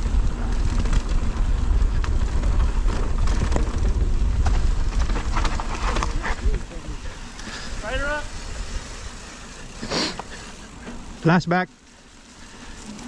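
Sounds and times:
wind buffeting microphone: 0.0 - 9.3
bike clicks and rattles: 0.0 - 13.0
tyre noise on dirt: 0.0 - 13.0.

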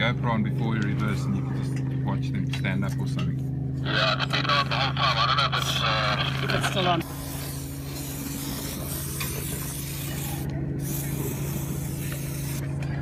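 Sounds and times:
steady low hum: 0.0 - 13.0
aerosol spray hissing: 7.0 - 12.7.

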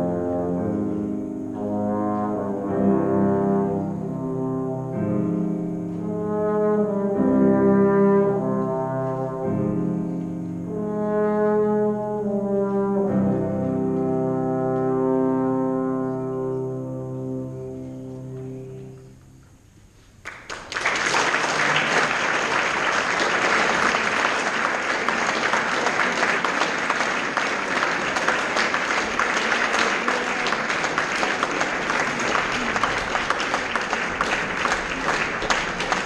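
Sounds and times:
audience applauding: 20.2 - 36.0.

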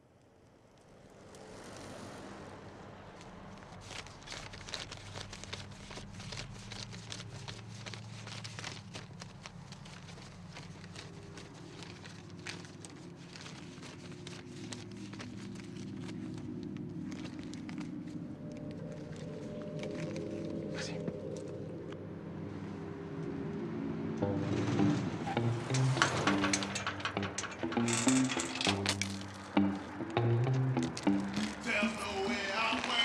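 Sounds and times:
crackling and clicking handling noise: 3.2 - 22.0, 24.6 - 33.0.

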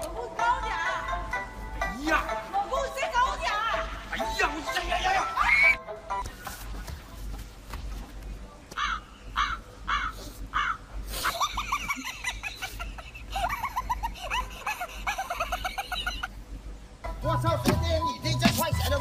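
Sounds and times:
crow cawing: 8.8 - 11.0
rapid high-pitched laughter: 11.2 - 16.4.

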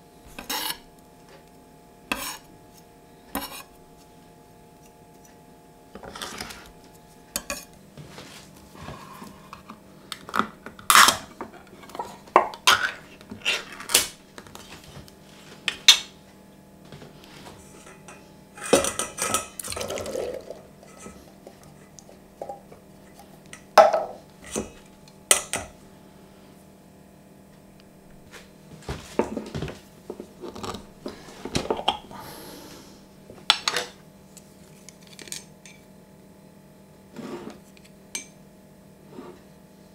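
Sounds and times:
kitchen utensils clinking and knocking: 17.8 - 21.2.

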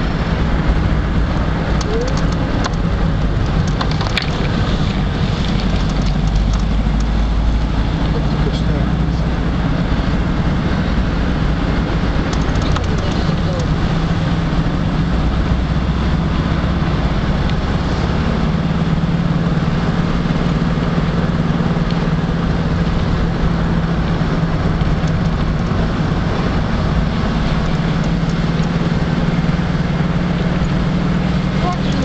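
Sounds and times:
car cabin engine and road hum: 0.0 - 32.0.

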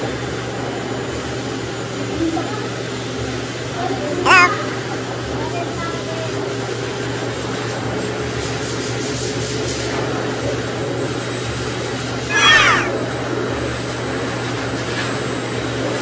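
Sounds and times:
puppy whining: 4.2 - 4.6, 12.3 - 13.0.

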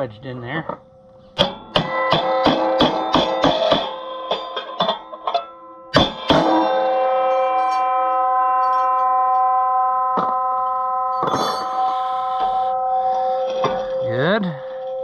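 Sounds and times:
metal strikes on steel: 1.4 - 14.8
steel ringing like a bell: 1.5 - 15.0.

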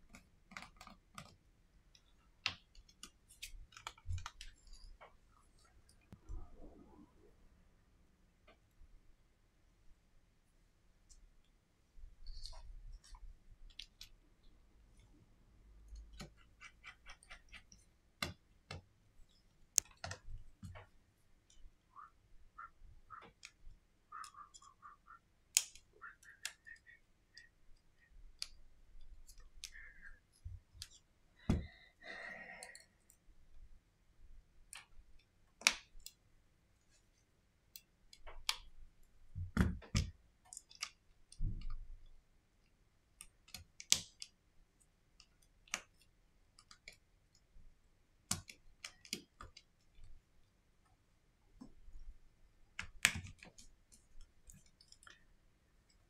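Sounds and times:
small clicks and taps: 0.0 - 6.3, 15.8 - 21.7, 23.1 - 31.7, 34.6 - 36.2, 37.7 - 44.4, 45.1 - 47.5, 48.2 - 50.2, 52.7 - 56.0.

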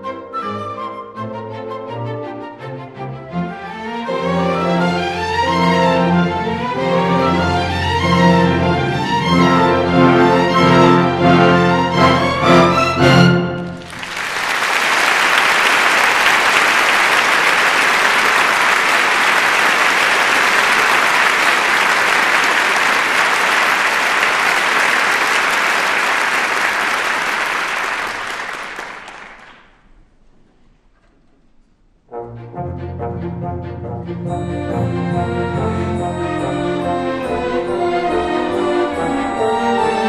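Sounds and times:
orchestra chord: 3.6 - 13.9, 32.1 - 40.0
audience applauding: 13.5 - 29.9.

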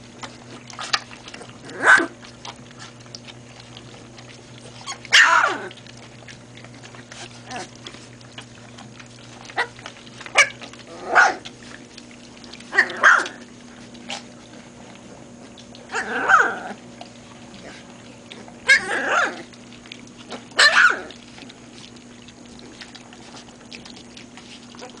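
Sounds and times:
puppy yelping: 1.7 - 2.2, 4.8 - 5.8, 9.4 - 11.5, 12.7 - 13.5, 15.9 - 16.8, 18.4 - 19.5, 20.3 - 21.2.

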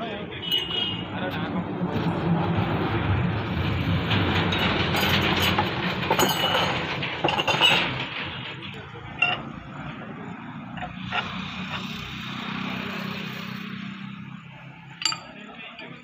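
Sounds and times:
metal parts clinking in a pan: 5.0 - 8.1, 9.1 - 9.7, 15.0 - 16.0.

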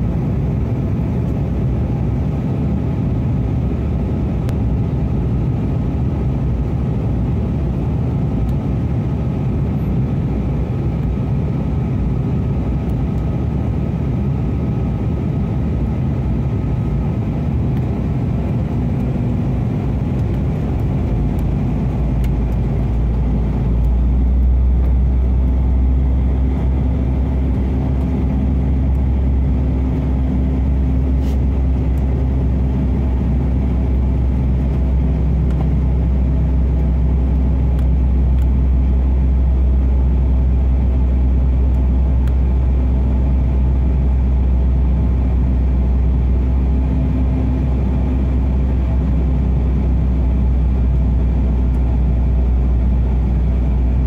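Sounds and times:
jet engine and airflow rumble: 0.0 - 54.0
steady low hum: 0.0 - 54.0.

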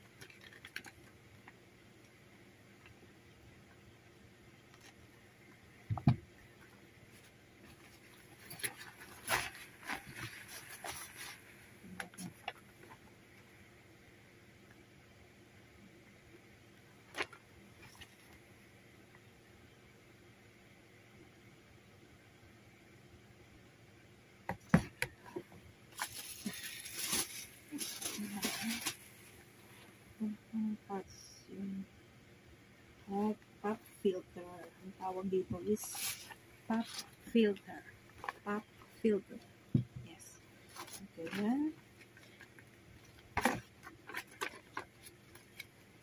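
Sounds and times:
paper and cloth rustling: 7.1 - 12.7, 26.0 - 30.0, 35.5 - 37.4, 40.6 - 46.0.

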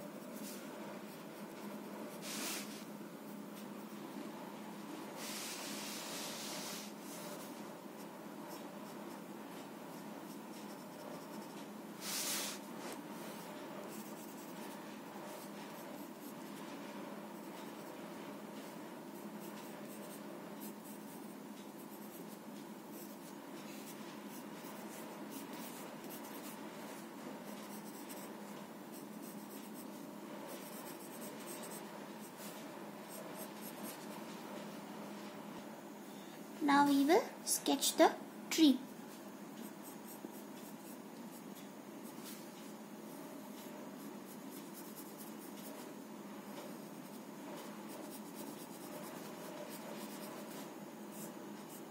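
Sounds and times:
pencil scratching on paper: 5.2 - 34.3, 39.6 - 42.4, 43.4 - 51.9.

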